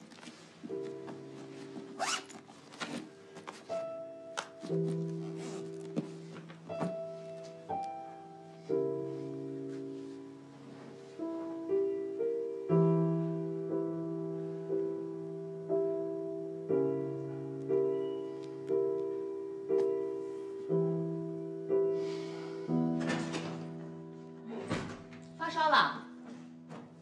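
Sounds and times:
slow solo piano music: 0.0s - 27.0s.

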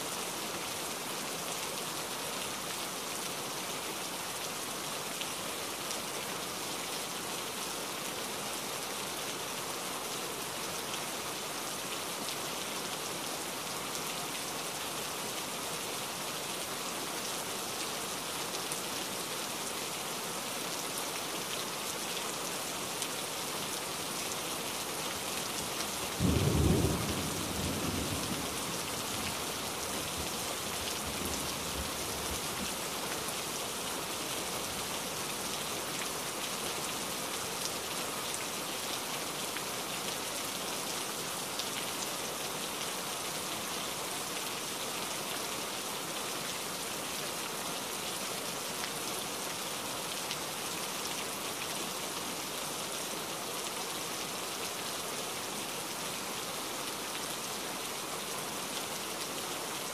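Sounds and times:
heavy rain falling: 0.0s - 59.9s.

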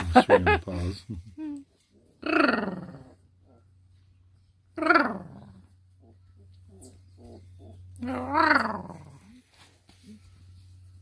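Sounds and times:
steady low hum: 0.0s - 11.0s
puppies grunting and whimpering: 1.9s - 3.8s, 4.8s - 9.4s.

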